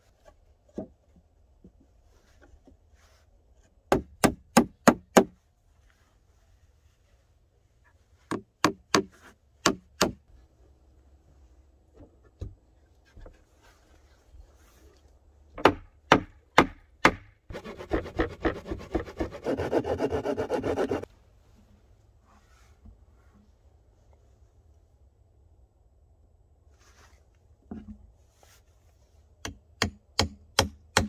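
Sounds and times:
hammering nails into wood: 0:03.9 - 0:05.4, 0:08.3 - 0:10.2, 0:15.6 - 0:17.4, 0:29.4 - 0:31.0
sawing wood: 0:16.6 - 0:21.1.

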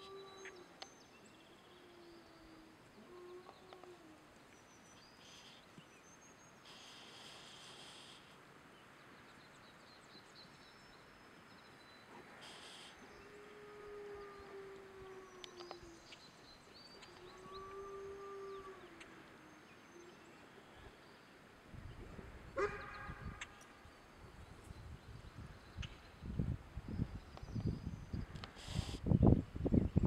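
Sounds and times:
songbirds chirping: 0:00.0 - 0:30.0.

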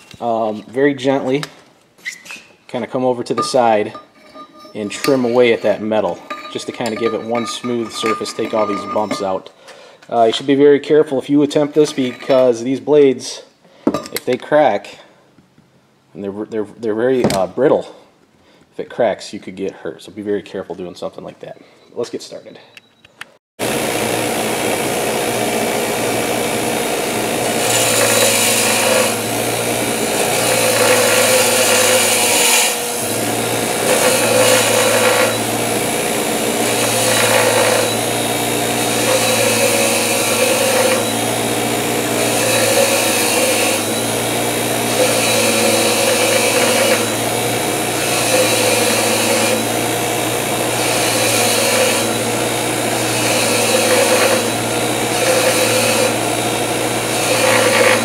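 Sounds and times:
wire wheel scratching metal: 0:03.4 - 0:09.4, 0:26.4 - 0:56.4, 0:57.0 - 0:58.0
bench grinder motor hum: 0:23.6 - 0:58.0.

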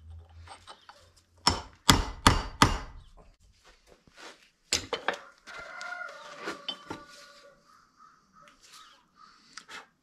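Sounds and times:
hammer striking metal punch: 0:01.4 - 0:03.0.

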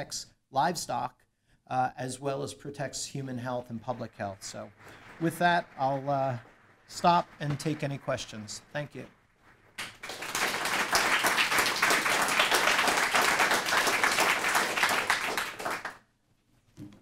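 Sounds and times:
audience applauding: 0:03.4 - 0:16.0.

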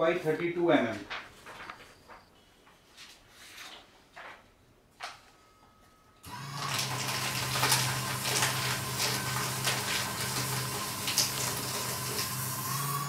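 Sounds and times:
paper shredder shredding paper: 0:06.2 - 0:13.0.

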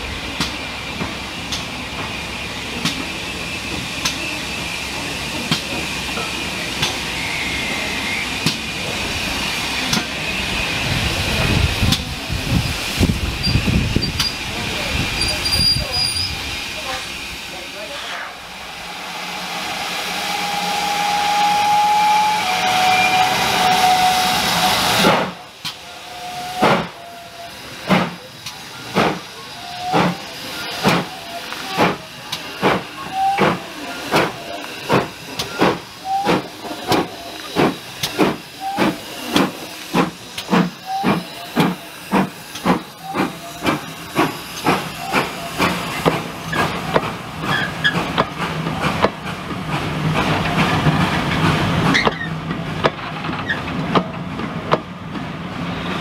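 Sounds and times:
loud steam hiss: 0:00.0 - 0:56.0
steam locomotive exhaust beats: 0:00.0 - 0:56.0.

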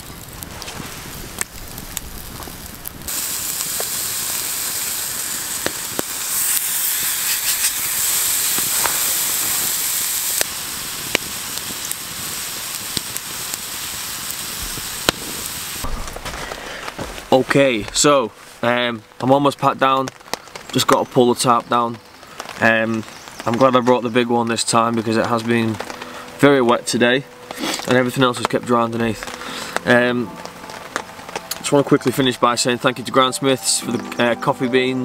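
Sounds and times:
campfire crackling: 0:00.0 - 0:35.0
bacon sizzling in a pan: 0:00.8 - 0:15.9.

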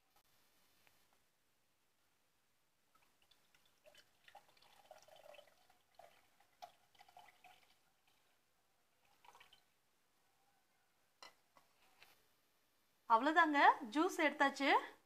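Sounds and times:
juice trickling into a glass: 0:03.0 - 0:08.4, 0:09.0 - 0:09.7.

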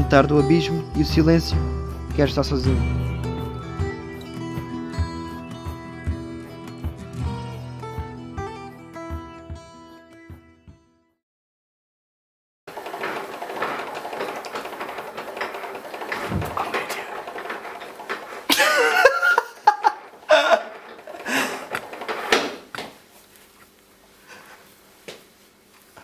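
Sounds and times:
room sound: 0:12.7 - 0:26.0.

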